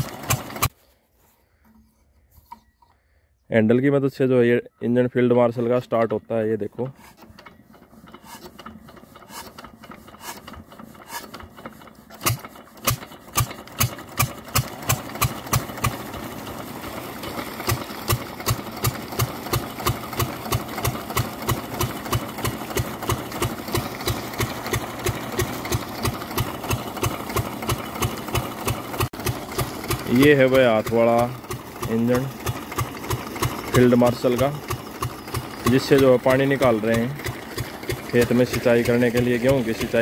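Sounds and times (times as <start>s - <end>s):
diesel engine being hand-cranked: 0.0s - 0.8s, 5.0s - 40.0s
diesel engine slow firing beat: 10.6s - 40.0s.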